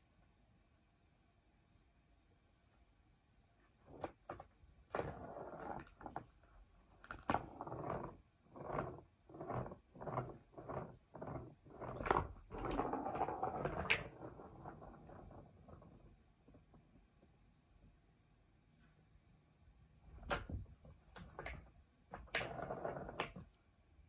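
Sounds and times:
ball rattling in plastic toy: 7.0 - 15.4.

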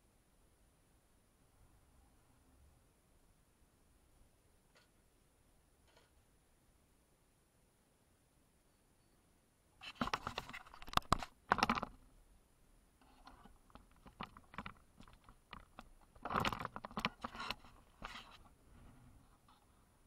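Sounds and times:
light crunches and clicks: 13.0 - 18.6.

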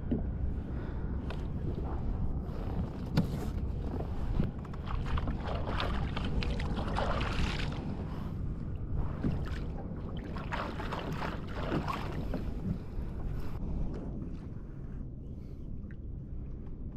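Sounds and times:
wind rumbling on microphone: 0.0 - 16.9
water splashing against kayak hull: 3.1 - 8.2, 9.0 - 13.6.

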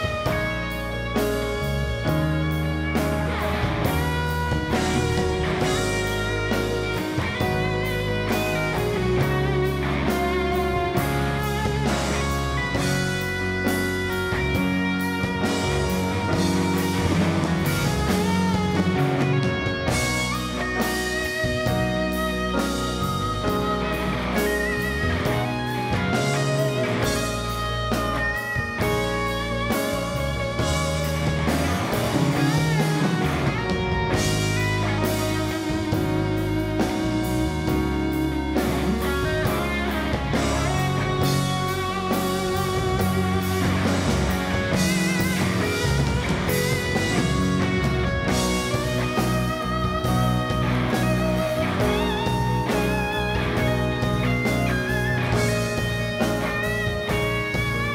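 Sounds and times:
bass guitar: 0.0 - 57.9
drum kit: 0.0 - 57.9
electric guitar lead with vibrato: 0.0 - 57.9.

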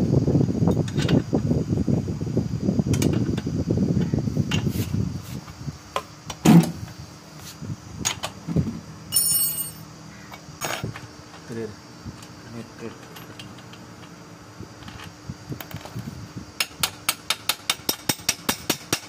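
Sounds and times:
short metallic ring: 9.1 - 9.9.

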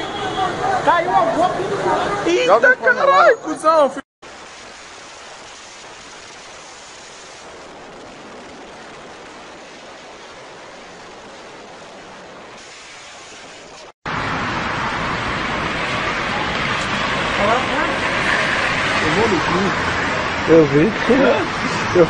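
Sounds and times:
steady rushing hiss: 4.2 - 14.2.

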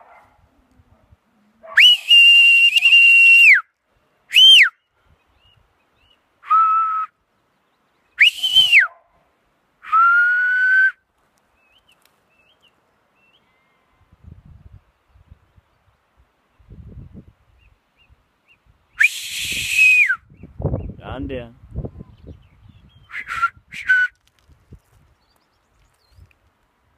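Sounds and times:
person whistling commands to dog: 1.8 - 3.6, 8.2 - 8.9, 23.1 - 24.1.

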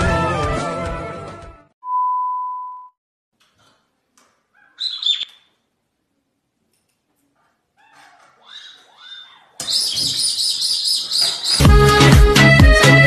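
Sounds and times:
music: 0.0 - 1.7, 11.5 - 13.0
electronic beep tone: 1.8 - 3.0.

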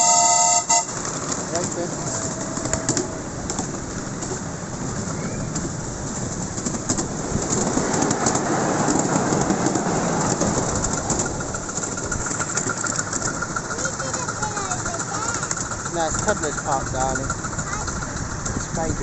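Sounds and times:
miniature train wheels on rails: 0.0 - 19.0.

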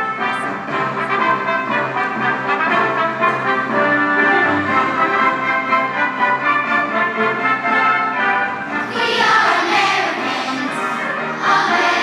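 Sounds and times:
band accompaniment with brass: 0.0 - 12.0
children's choir singing: 8.7 - 12.0.

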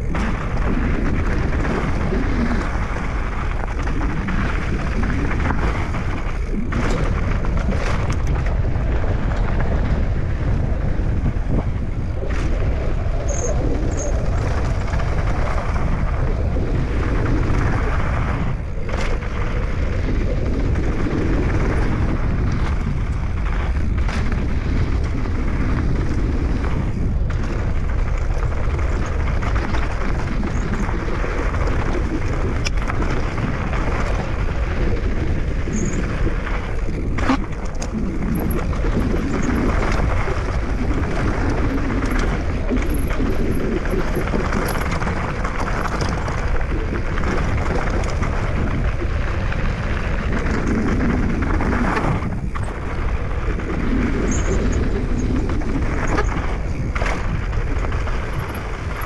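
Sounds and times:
vehicle rumbling in motion: 0.0 - 59.0.

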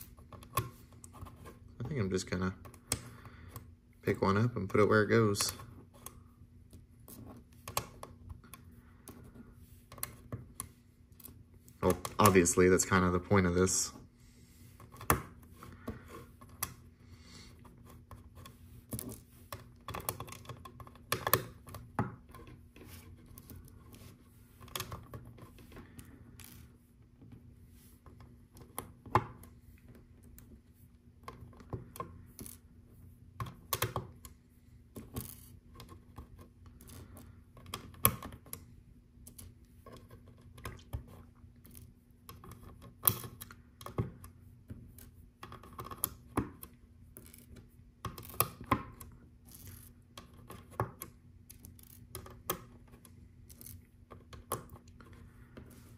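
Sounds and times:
faint steady hum: 0.0 - 55.9
plastic pieces clicking and tapping: 17.8 - 24.0, 33.4 - 38.6, 39.2 - 55.8.

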